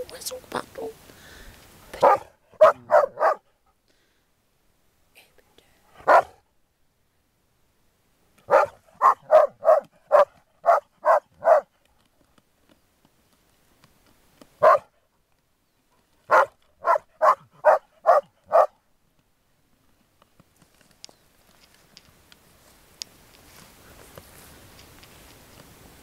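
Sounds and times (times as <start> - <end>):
dog barking: 2.0 - 3.5, 6.0 - 6.4, 8.5 - 11.7, 14.6 - 15.0, 16.3 - 18.8.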